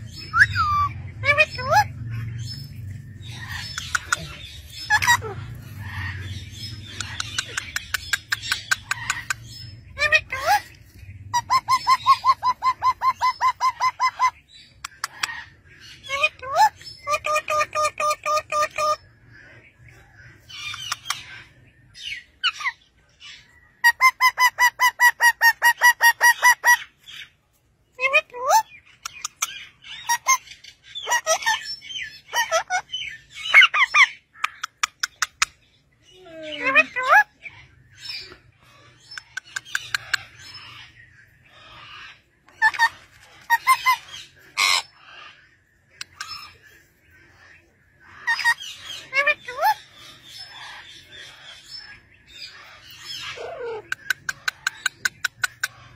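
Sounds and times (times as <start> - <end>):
parakeets calling: 0.0 - 27.4, 28.0 - 55.9
parakeet chirps: 0.1 - 10.6
parakeet squawks: 41.7 - 45.4.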